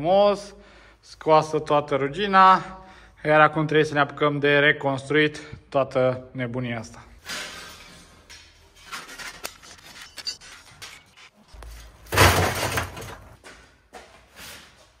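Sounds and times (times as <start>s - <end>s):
loud clattering crash: 12.0s - 13.4s.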